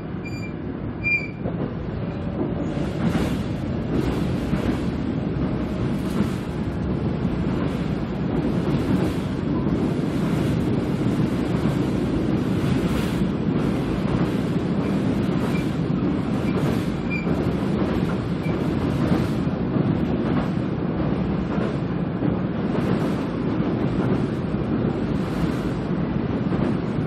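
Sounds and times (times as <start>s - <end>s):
train wheels rumbling on rails: 0.0s - 27.0s
faint high squeaks: 0.2s - 1.4s.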